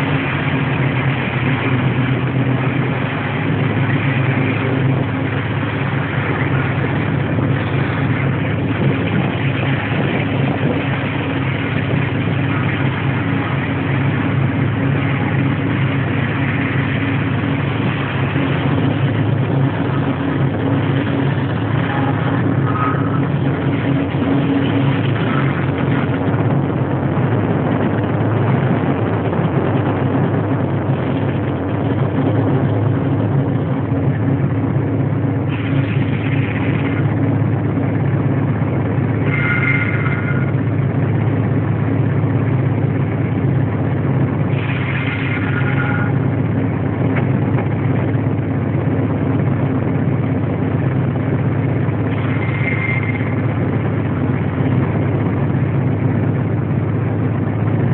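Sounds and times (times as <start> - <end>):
diesel locomotive engine hum: 0.0 - 57.9
train running noise: 0.0 - 57.9
high-pitched squeals: 20.8 - 26.2, 39.2 - 40.7, 44.5 - 46.4, 52.1 - 53.5.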